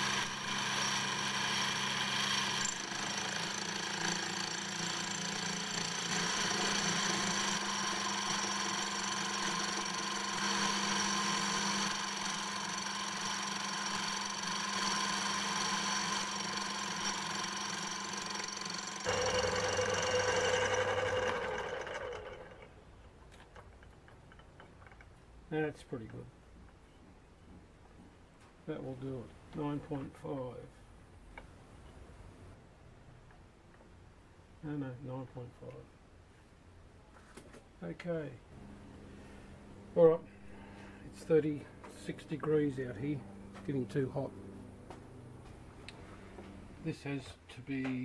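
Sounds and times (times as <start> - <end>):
cordless drill whirring: 0.0 - 22.7
metal lathe humming: 0.0 - 22.8.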